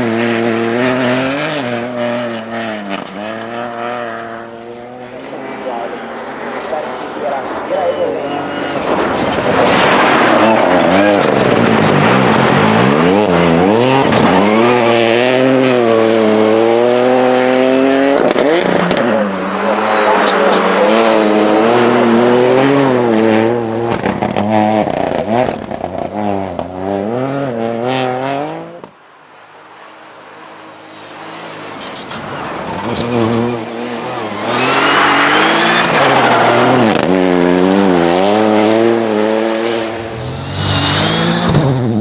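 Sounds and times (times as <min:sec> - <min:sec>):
rally car engine revving: 0:00.0 - 0:28.9, 0:30.1 - 0:42.0.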